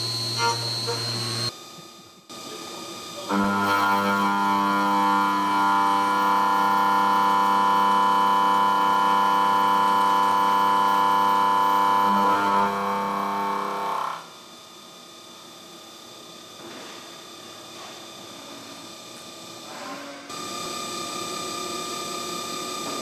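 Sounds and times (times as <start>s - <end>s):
milling machine cutting metal: 3.3s - 14.2s.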